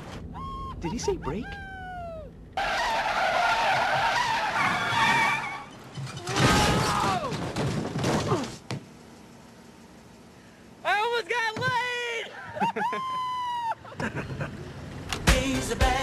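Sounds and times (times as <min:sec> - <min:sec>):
car tyres screeching: 0:02.6 - 0:06.8.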